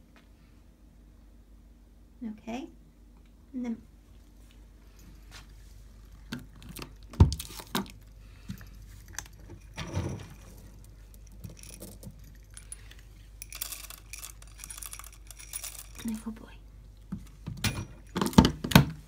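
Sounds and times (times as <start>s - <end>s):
cat crunching dry food: 5.8s - 9.8s, 10.4s - 17.1s
kibble clinking against bowl: 6.7s - 16.4s.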